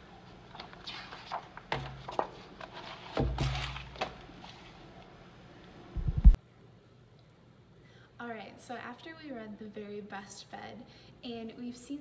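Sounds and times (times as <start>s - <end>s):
book pages rustling: 0.5s - 4.8s.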